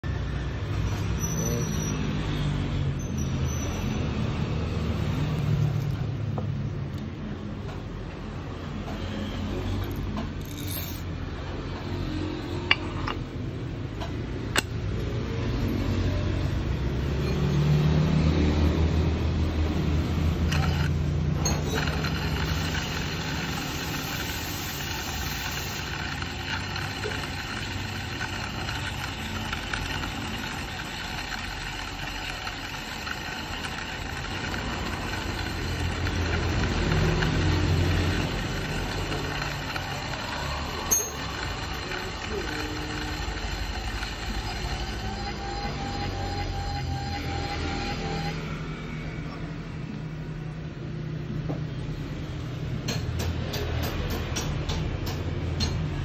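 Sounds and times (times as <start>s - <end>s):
coffee grinder motor whine: 3.3s - 6.5s, 8.9s - 11.1s, 14.5s - 48.9s.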